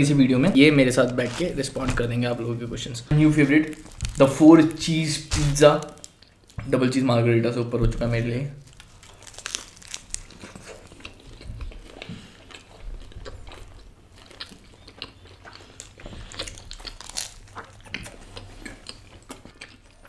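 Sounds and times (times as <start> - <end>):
crust crunching: 0.0 - 6.6, 8.6 - 12.3, 15.5 - 19.5
people chewing pizza: 8.8 - 20.0.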